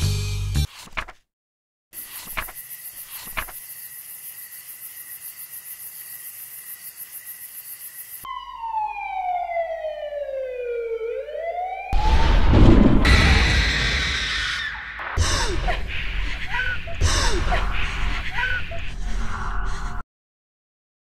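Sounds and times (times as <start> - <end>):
wailing tone gliding in pitch: 8.3 - 12.4
loud burst of noise: 12.0 - 15.3.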